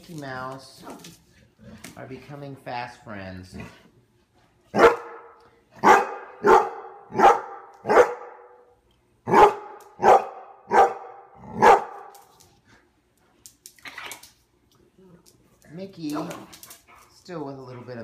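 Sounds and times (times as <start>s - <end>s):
dog barking: 4.7s - 8.7s, 9.3s - 12.1s.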